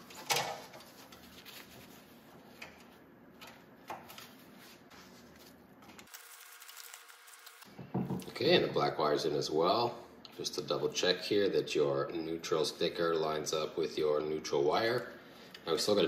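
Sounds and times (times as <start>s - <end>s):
gloves rustling: 0.0s - 7.7s.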